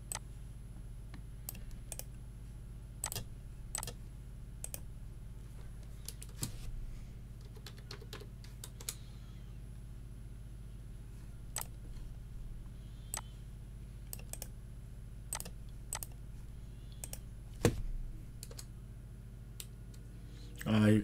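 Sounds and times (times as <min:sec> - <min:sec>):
low steady hum: 0:00.0 - 0:21.0
computer keyboard keystrokes: 0:03.0 - 0:04.0, 0:07.4 - 0:09.0, 0:14.1 - 0:14.5, 0:15.3 - 0:16.2, 0:17.0 - 0:17.2, 0:18.4 - 0:18.7.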